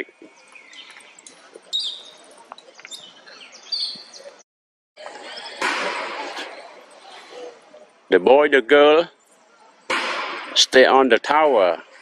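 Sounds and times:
faint outdoor hiss: 0.0 - 4.4, 5.0 - 12.0
short high chirping calls: 0.4 - 2.2, 2.8 - 4.4.

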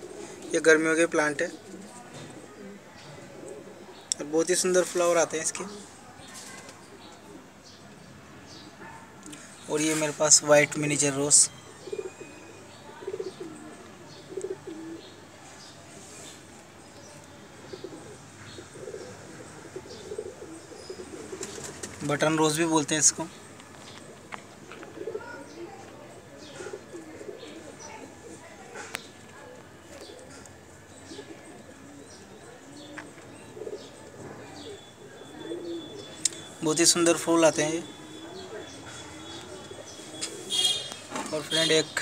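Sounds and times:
pigeon cooing: 0.0 - 0.6, 1.4 - 4.1, 11.5 - 15.2, 17.6 - 22.0, 24.0 - 36.6, 37.8 - 41.0
small birds chirping: 0.0 - 42.0
faint bird chirps: 29.8 - 41.6.

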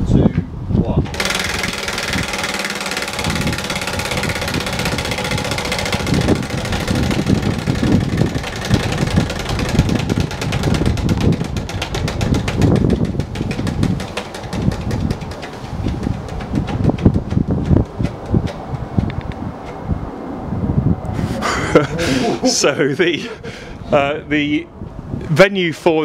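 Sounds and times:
wind rumbling on microphone: 0.0 - 26.0
prize wheel pointer ticking: 1.1 - 18.3.

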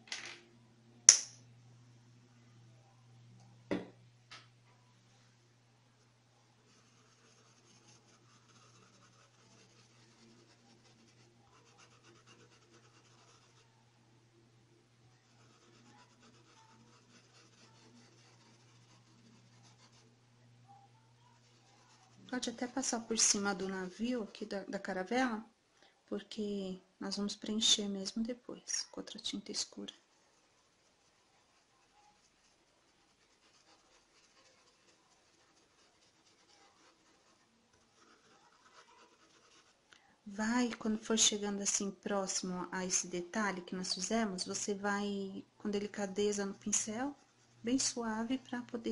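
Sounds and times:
low steady hum: 0.0 - 48.9
paintbrush scratching fabric: 6.6 - 13.8, 15.1 - 24.4, 29.7 - 39.8.

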